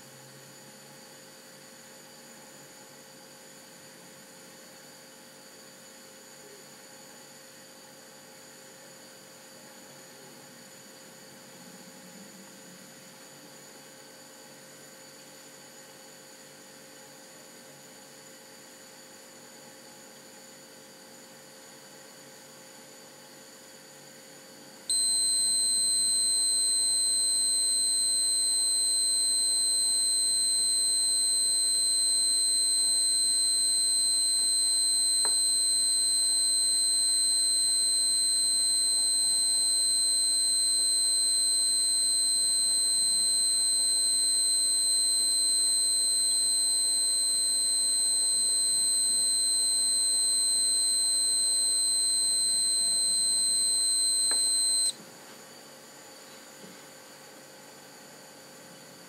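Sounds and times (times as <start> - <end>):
faint electrical hum: 0.0 - 59.0
high-pitched warning tone: 24.9 - 54.9.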